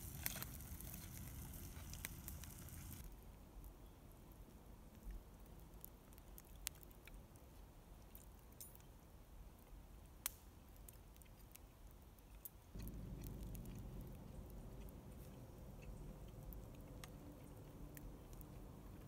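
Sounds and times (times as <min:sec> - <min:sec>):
faint chewing: 0:00.0 - 0:03.1, 0:04.9 - 0:08.9, 0:09.6 - 0:19.0
low rumble: 0:12.8 - 0:19.0.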